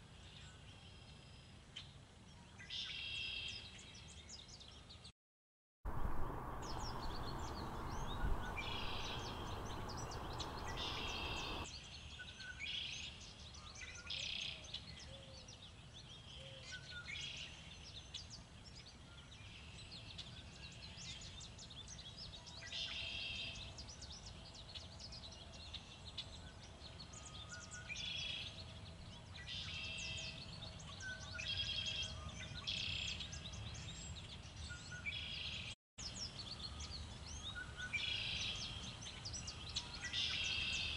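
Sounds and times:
wind gust on microphone: 5.9 - 11.7
songbirds singing: 5.9 - 40.9.

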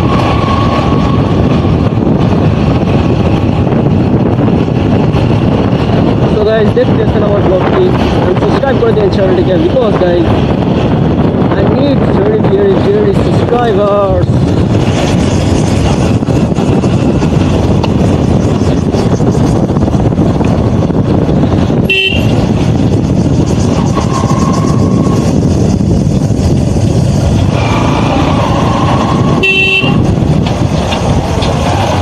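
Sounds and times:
wind and road noise: 0.0 - 32.0
motorcycle engine running: 14.2 - 32.0
motorcycle horn toots: 21.8 - 22.4, 29.4 - 30.1.

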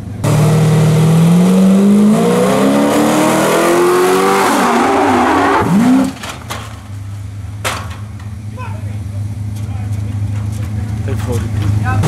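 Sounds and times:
truck engine revving hard: 0.0 - 6.2.

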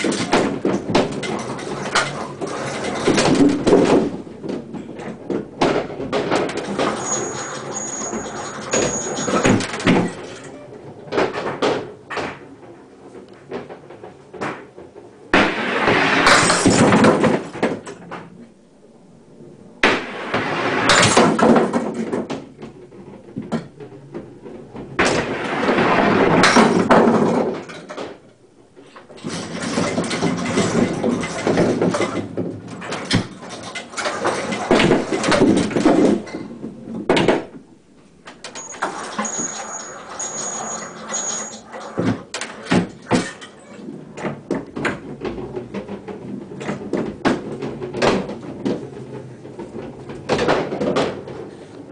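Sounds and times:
wooden knocking and rattling: 0.0 - 10.5, 20.9 - 51.6
bowling pins clattering: 0.0 - 51.9.

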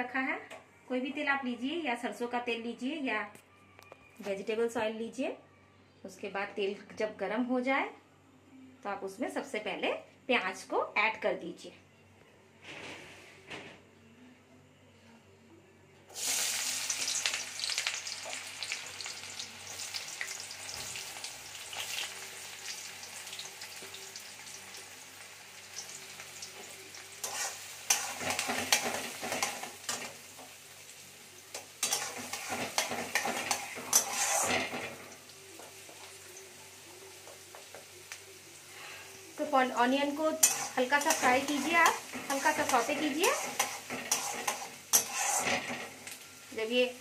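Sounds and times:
onions sizzling in hot oil: 16.1 - 47.0
spatula scraping pan: 27.2 - 30.2, 31.6 - 35.2, 40.2 - 46.2.

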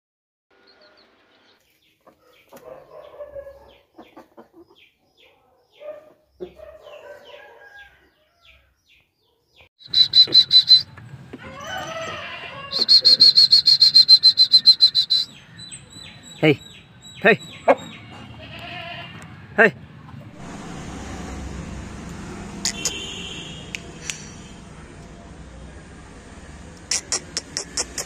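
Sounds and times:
faint clucks and chirps: 1.6 - 8.6
rooster crowing: 6.9 - 8.7, 11.4 - 13.3.

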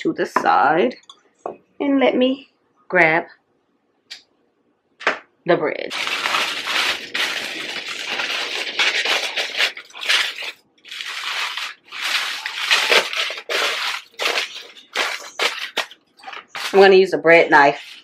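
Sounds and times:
aluminium foil crinkling: 5.9 - 18.0.

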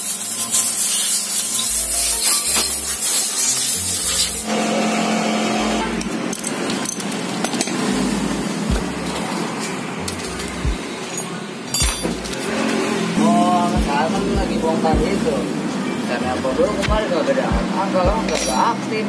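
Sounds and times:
brush scrubbing metal: 0.0 - 4.4
workshop hum: 0.0 - 19.0
metal parts and tools clicking: 6.0 - 8.0, 9.1 - 12.5, 18.2 - 18.7.

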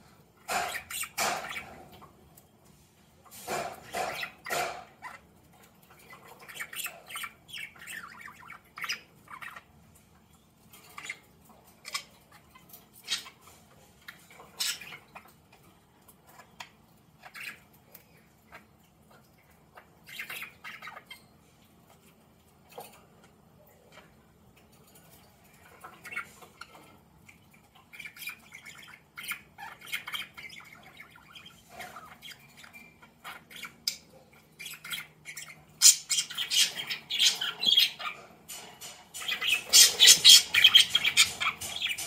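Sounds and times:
budgerigars chirping: 0.4 - 2.2, 3.3 - 9.8, 10.8 - 15.4, 19.8 - 21.3, 25.6 - 42.0.

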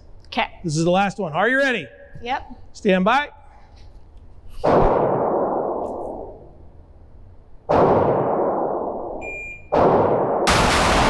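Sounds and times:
shot timer beep: 9.2 - 9.8.

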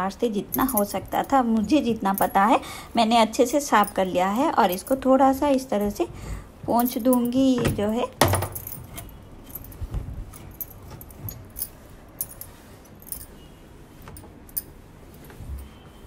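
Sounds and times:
light clinks and jingles: 0.5 - 2.6, 3.6 - 5.1, 6.8 - 7.8, 8.4 - 13.6.

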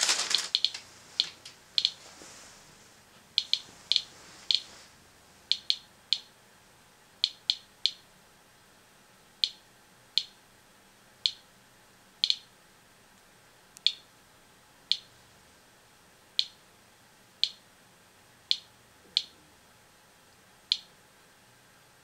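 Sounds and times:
geiger counter clicking: 0.2 - 2.0, 3.3 - 4.6, 5.5 - 6.4, 7.2 - 8.1, 9.3 - 10.4, 11.2 - 11.5, 12.2 - 12.5, 13.8 - 14.1, 14.9 - 15.1, 16.4 - 16.6, 17.4 - 17.6, 18.4 - 19.4, 20.7 - 20.9.

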